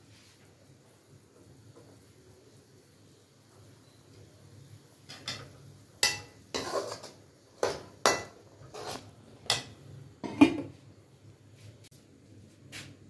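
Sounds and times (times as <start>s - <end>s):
metal spoon clanking in a pot: 5.1s - 10.5s.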